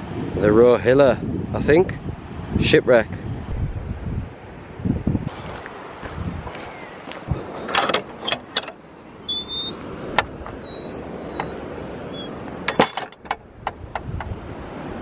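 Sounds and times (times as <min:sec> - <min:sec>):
wind on microphone: 0:00.0 - 0:07.8, 0:13.4 - 0:15.0
metal gate latch clicking: 0:07.7 - 0:09.6, 0:12.7 - 0:14.1.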